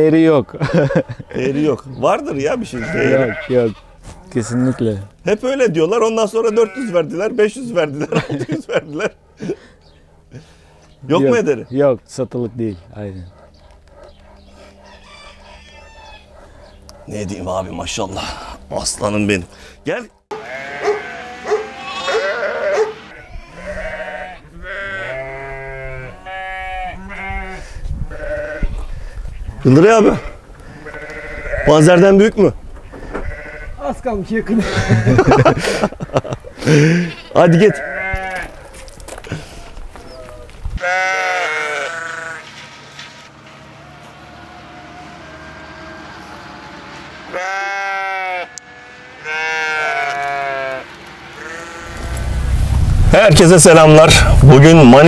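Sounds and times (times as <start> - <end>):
sheep bleating: 2.4 - 5.1, 6.0 - 8.2, 20.3 - 29.0, 29.7 - 32.1, 33.2 - 33.9, 34.6 - 35.5, 36.6 - 39.2, 40.8 - 42.6, 44.0 - 46.4, 47.2 - 52.3.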